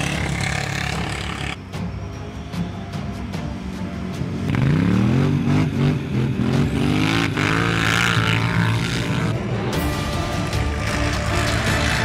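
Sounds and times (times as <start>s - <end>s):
quad engine revving: 0.0s - 1.6s, 4.5s - 9.4s, 10.6s - 12.0s
rally car engine revving: 4.5s - 9.4s, 10.3s - 12.0s.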